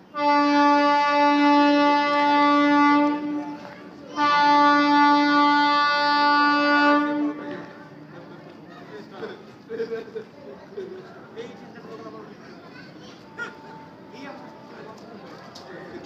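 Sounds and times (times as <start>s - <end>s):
train horn blasts: 0.1s - 7.7s.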